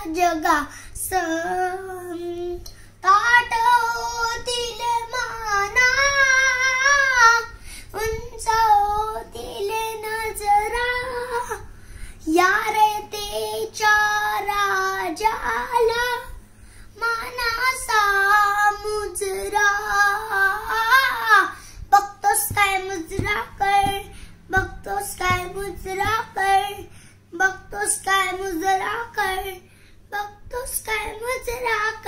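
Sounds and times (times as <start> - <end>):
boy singing: 0.0 - 16.4, 17.0 - 32.0.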